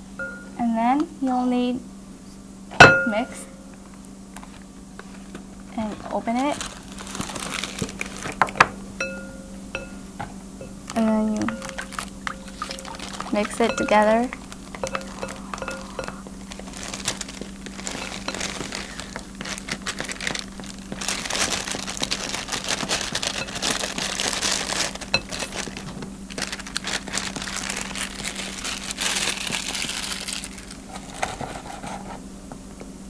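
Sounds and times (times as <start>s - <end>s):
plastic bag crinkling: 4.4s - 8.7s, 11.4s - 31.6s.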